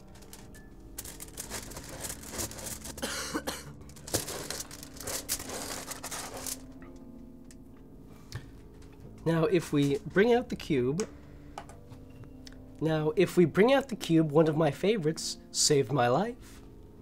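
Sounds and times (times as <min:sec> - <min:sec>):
foil crinkling and rustling: 0:00.0 - 0:06.7.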